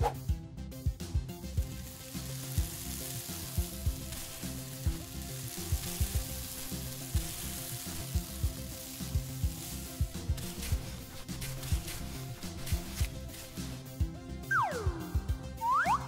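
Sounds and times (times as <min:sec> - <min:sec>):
background music with soft beats: 0:00.0 - 0:16.0
kinetic sand squeezed by hand: 0:01.6 - 0:14.1.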